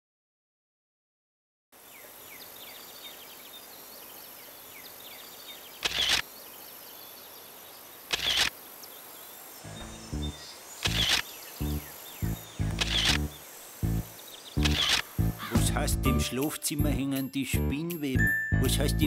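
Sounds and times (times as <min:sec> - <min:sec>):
small birds chirping: 0:01.8 - 0:15.9
camera shutter clicks: 0:05.8 - 0:06.2, 0:08.1 - 0:08.5, 0:10.8 - 0:11.2, 0:12.6 - 0:13.3, 0:14.6 - 0:15.1.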